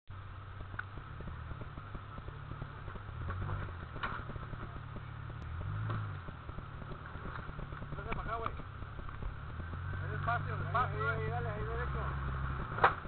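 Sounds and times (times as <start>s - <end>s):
car engine revving at low revs: 0.1s - 13.0s
small clicks and knocks: 5.3s - 9.7s.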